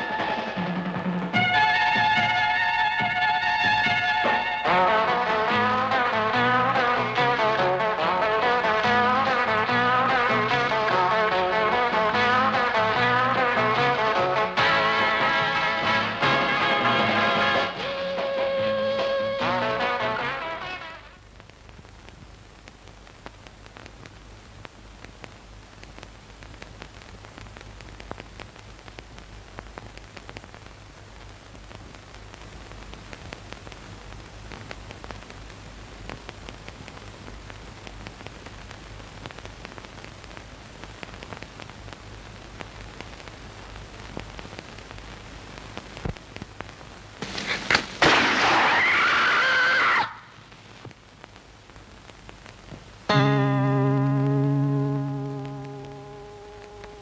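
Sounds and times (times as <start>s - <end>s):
film soundtrack hiss and crackle: 0.0s - 57.0s
sudden loud sound: 47.2s - 50.3s
low steady hum: 50.9s - 57.0s.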